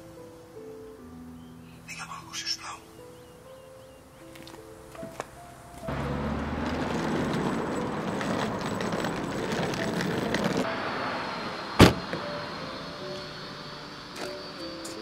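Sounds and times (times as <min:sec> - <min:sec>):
street traffic: 0:04.3 - 0:15.0
car rear hatch slamming: 0:11.6 - 0:12.8.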